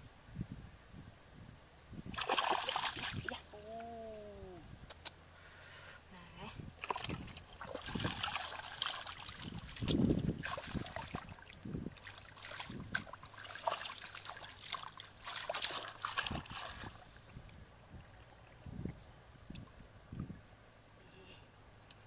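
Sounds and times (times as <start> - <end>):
loud splash: 2.1 - 3.4, 6.8 - 11.3, 12.1 - 17.0
muddy water splashing: 2.1 - 4.2, 6.8 - 18.6.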